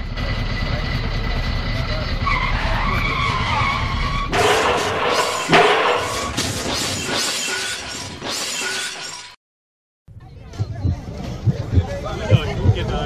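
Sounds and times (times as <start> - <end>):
bus crash impact: 4.3 - 9.3
glass shattering: 4.3 - 9.4.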